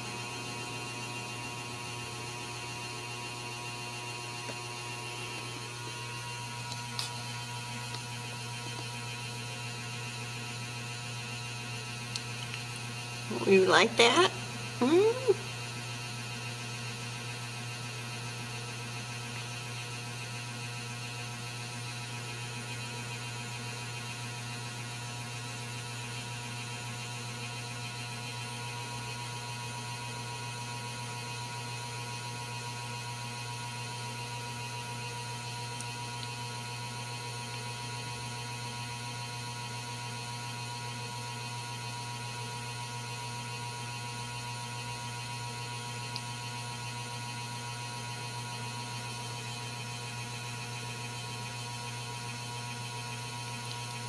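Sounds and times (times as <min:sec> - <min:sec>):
low electrical hum: 0:00.0 - 0:20.4.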